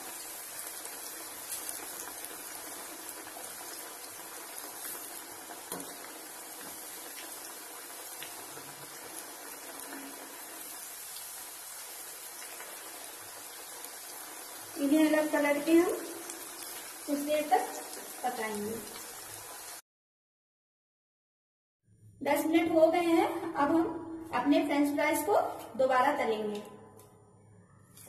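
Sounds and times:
fries sizzling in hot oil: 0.0s - 19.8s.

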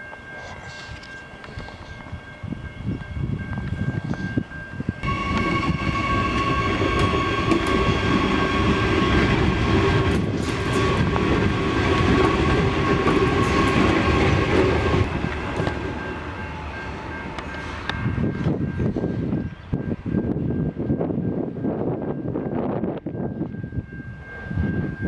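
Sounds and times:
train wheels rumbling on rails: 0.0s - 25.0s.

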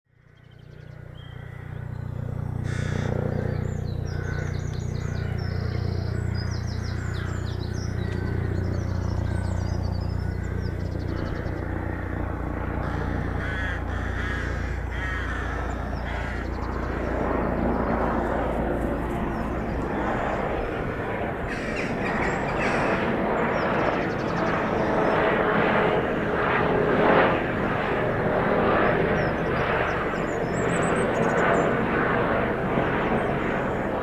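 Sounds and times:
low engine drone: 0.1s - 34.0s
small birds chirping: 0.2s - 34.0s
harsh caws: 1.2s - 1.8s, 2.6s - 5.5s, 6.9s - 7.6s, 11.9s - 17.0s, 21.5s - 23.1s.

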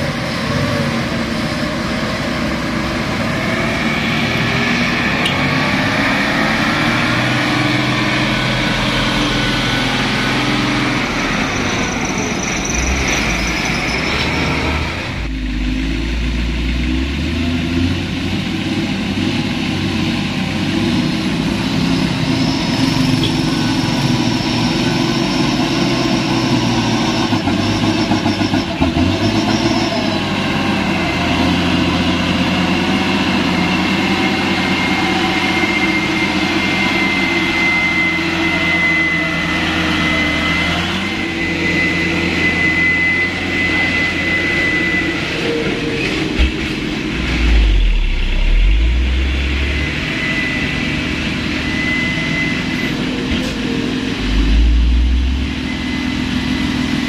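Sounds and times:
diesel truck engine running: 0.0s - 57.0s
steady high whine: 33.4s - 57.0s.

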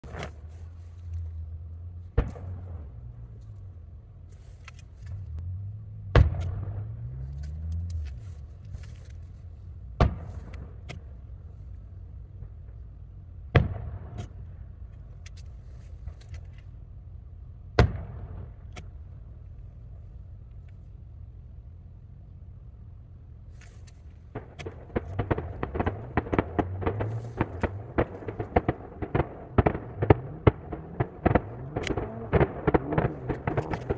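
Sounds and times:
low hum: 0.0s - 33.9s
distant firework booms: 24.3s - 33.9s
firework crackling: 24.3s - 33.9s.

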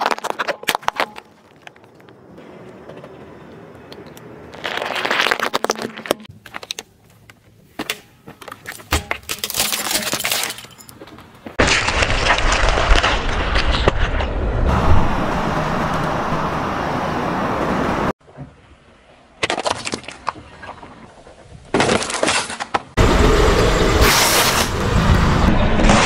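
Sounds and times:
tyre crushing and cracking: 0.0s - 2.4s, 4.4s - 14.3s, 21.7s - 22.9s
car rolling rumble: 11.1s - 18.2s, 23.0s - 26.0s.

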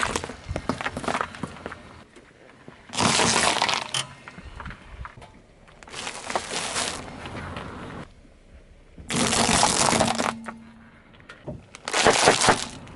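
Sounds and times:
tyre crushing objects on asphalt: 0.0s - 1.8s, 2.9s - 4.0s, 5.7s - 7.5s, 9.0s - 10.7s, 11.6s - 12.9s.

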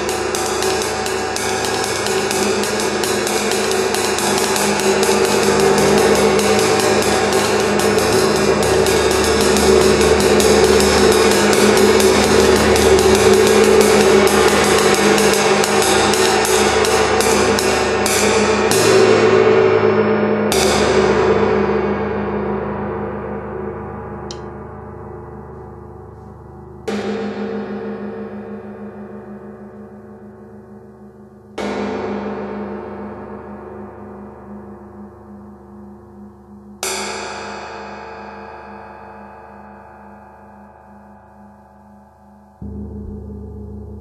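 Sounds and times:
gong roll with drumsticks: 0.0s - 19.5s, 35.0s - 44.0s.

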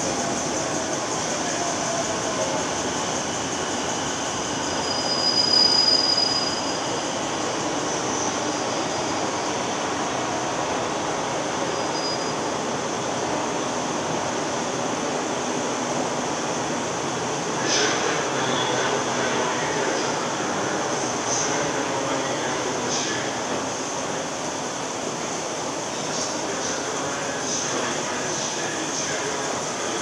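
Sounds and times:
high-pitched squeal: 1.2s - 7.1s.

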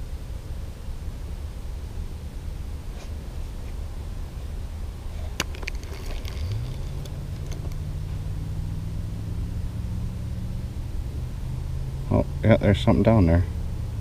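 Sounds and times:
low rumble: 0.0s - 14.0s
boat motor humming: 4.4s - 14.0s.

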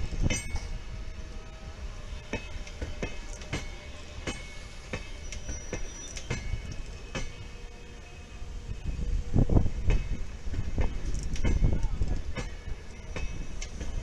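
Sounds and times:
wheels clicking over rail joints: 0.0s - 1.0s, 2.0s - 8.0s, 9.6s - 14.0s
low train rumble: 0.0s - 14.0s
thin wheel squeal: 4.6s - 6.6s.

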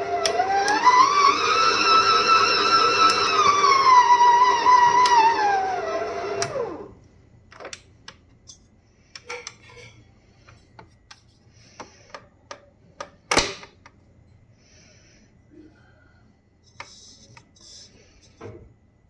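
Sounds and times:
stand mixer motor whining: 0.0s - 6.9s.

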